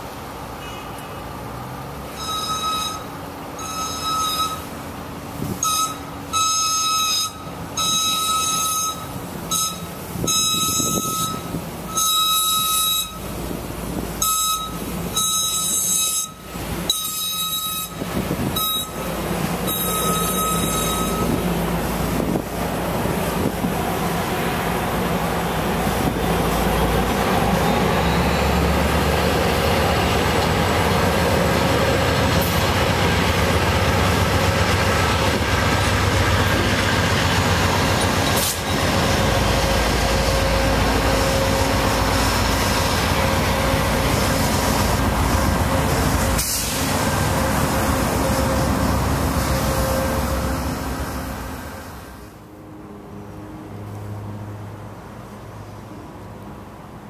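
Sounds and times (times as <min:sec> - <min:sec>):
diesel locomotive drone: 0:00.0 - 0:57.0
train rumbling and clattering: 0:00.0 - 0:57.0
high-pitched warning tone: 0:02.1 - 0:04.7, 0:05.6 - 0:13.3, 0:14.2 - 0:18.0, 0:18.6 - 0:19.0, 0:19.6 - 0:21.4.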